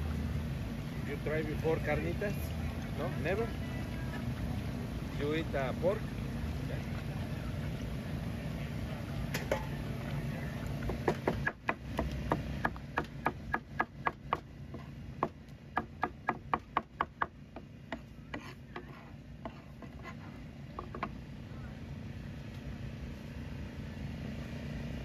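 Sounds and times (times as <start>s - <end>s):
cleaver chopping on cutting board: 10.9s - 14.4s.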